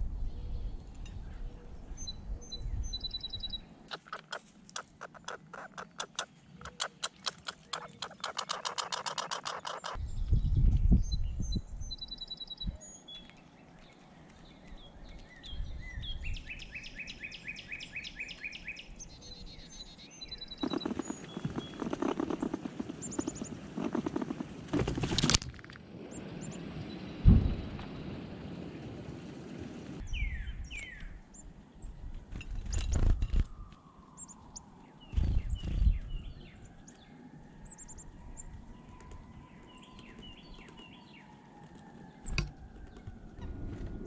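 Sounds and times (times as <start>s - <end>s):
wild birds chirping: 0.3s - 10.4s, 11.0s - 25.2s, 26.0s - 29.0s, 32.6s - 44.0s
dense scratchy noise: 20.6s - 25.3s
brief low rumble: 27.2s - 28.2s.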